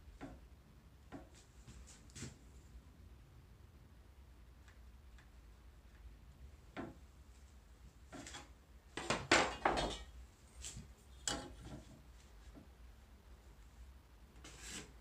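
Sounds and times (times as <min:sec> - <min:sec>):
metal tools knocking on wood: 0:09.0 - 0:10.1.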